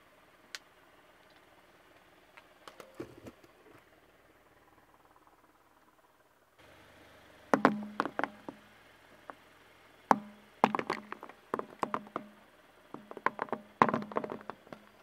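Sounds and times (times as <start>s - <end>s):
tyre crushing hard balls: 7.6s - 8.6s, 10.1s - 15.0s.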